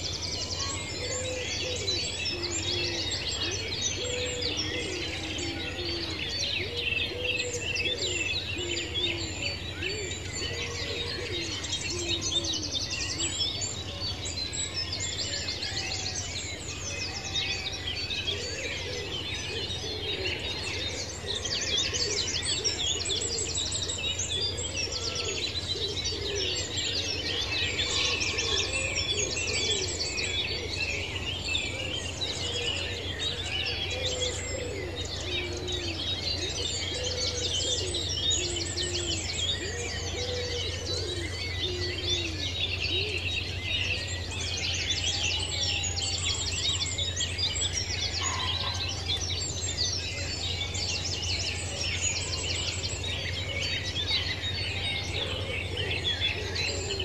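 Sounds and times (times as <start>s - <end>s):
birds chirping and trilling: 0.0s - 57.0s.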